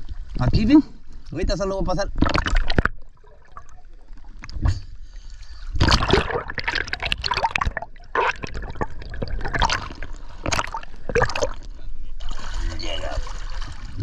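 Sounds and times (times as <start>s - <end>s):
water gurgling underwater: 2.1s - 4.9s, 5.7s - 14.0s
water splashing: 2.1s - 14.0s.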